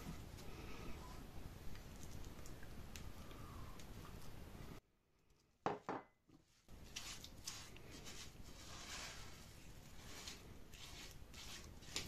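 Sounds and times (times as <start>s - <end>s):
stirring thick paste: 6.4s - 12.0s
spatula scraping a bowl: 6.8s - 12.0s.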